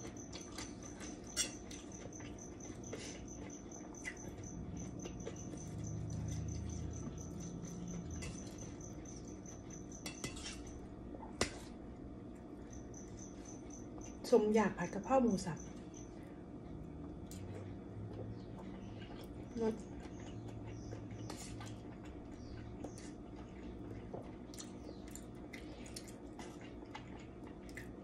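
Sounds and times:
cutlery scraping a plate: 0.4 - 1.9, 8.1 - 8.7, 9.7 - 10.8.

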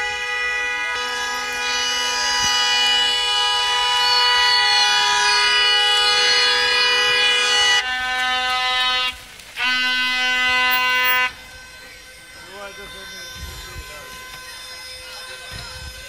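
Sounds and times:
two-tone car horn blare: 0.0 - 15.0
lower steady horn tone: 0.0 - 15.4.

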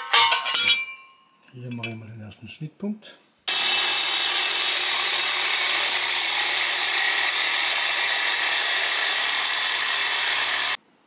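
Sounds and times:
angle grinder cutting steel: 3.5 - 10.8.

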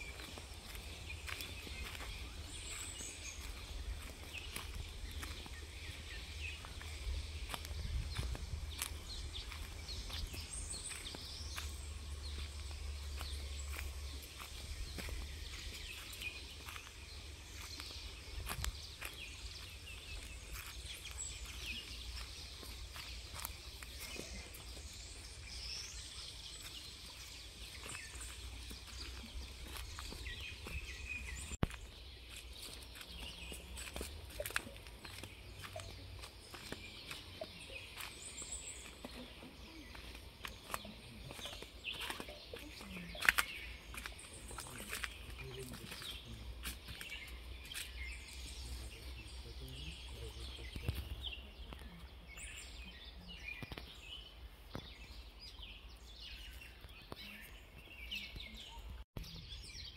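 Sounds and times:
steady low rumble: 0.0 - 24.0
footsteps on wooden planks: 0.0 - 48.0
forest birds chirping: 0.0 - 59.9.

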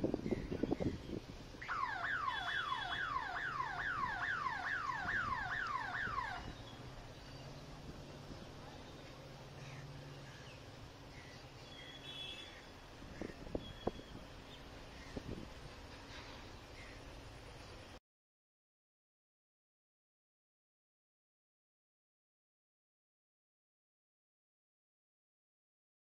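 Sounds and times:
electronic siren-like warble: 1.6 - 6.6.

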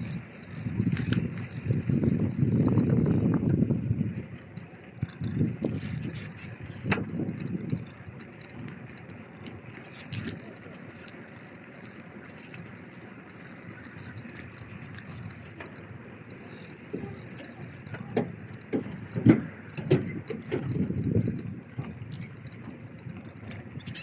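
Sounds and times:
bicycle knocks and rattles: 0.0 - 3.9, 4.6 - 24.0
wind noise: 0.0 - 4.4, 5.0 - 9.0, 16.5 - 24.0
bicycle rolling: 0.0 - 24.0.

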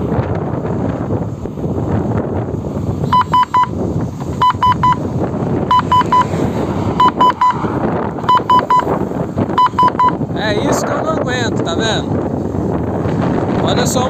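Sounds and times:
wind rumble on microphone: 0.0 - 14.0
short high warning beeps: 3.1 - 3.7, 4.4 - 5.0, 5.7 - 6.3, 7.0 - 7.6, 8.2 - 8.9, 9.6 - 10.2.

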